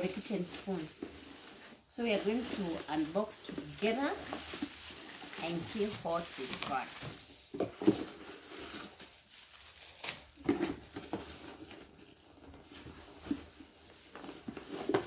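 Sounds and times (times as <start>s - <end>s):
cardboard packaging rustling: 0.0s - 15.0s.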